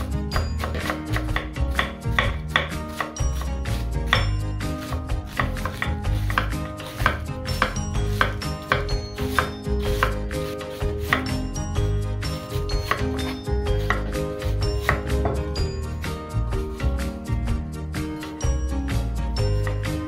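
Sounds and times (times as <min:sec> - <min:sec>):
knife strokes on cutting board: 0:00.0 - 0:15.3.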